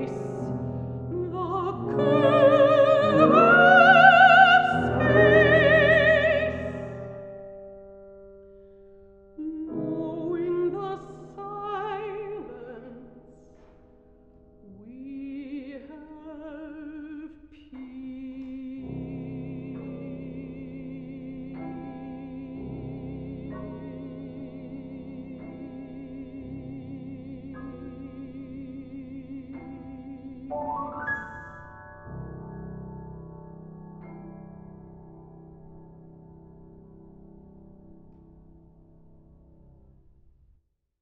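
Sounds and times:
woman singing with vibrato: 0:00.0 - 0:07.2, 0:09.4 - 0:13.3, 0:14.7 - 0:30.6
piano accompaniment: 0:00.0 - 0:40.2.

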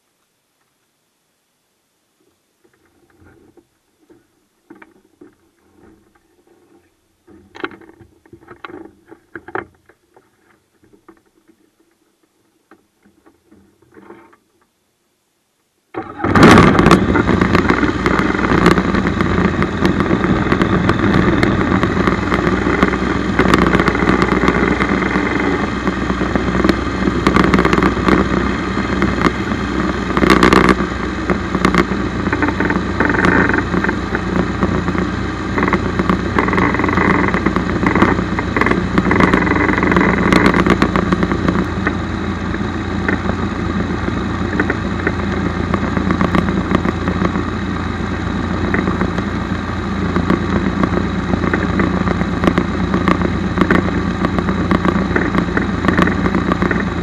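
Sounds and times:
faint clicks and knocks: 0:02.2 - 0:14.8
aircraft engine running: 0:16.0 - 0:57.0.

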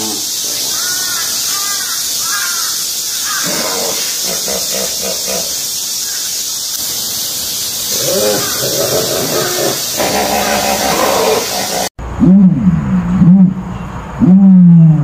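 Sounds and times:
steady high hiss: 0:00.0 - 0:12.0.

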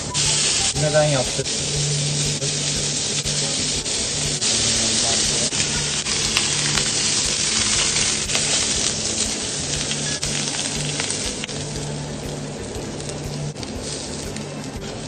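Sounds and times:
burger sizzling on a griddle: 0:00.0 - 0:15.0
low hum: 0:00.0 - 0:15.0.

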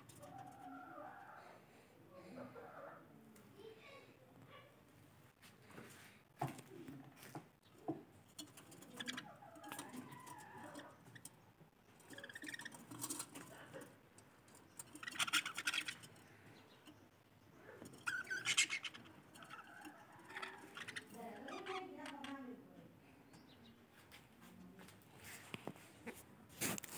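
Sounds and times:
budgerigars chattering: 0:18.0 - 0:21.9.

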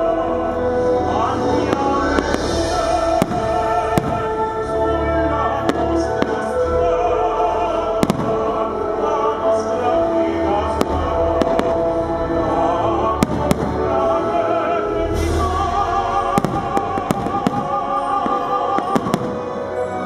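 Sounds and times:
music with singing: 0:00.0 - 0:20.0
fireworks bursting: 0:01.1 - 0:06.9, 0:08.0 - 0:08.8, 0:10.8 - 0:20.0.

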